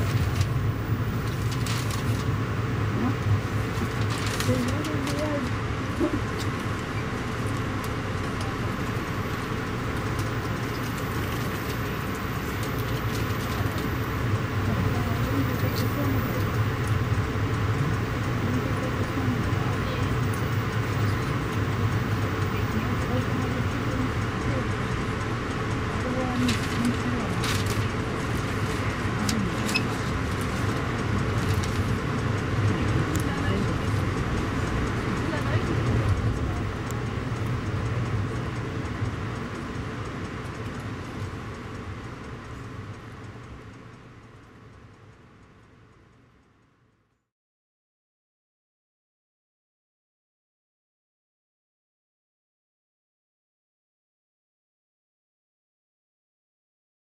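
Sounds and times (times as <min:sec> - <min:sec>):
train rumbling: 0:00.0 - 0:45.8
ticks and rattles: 0:17.8 - 0:42.7.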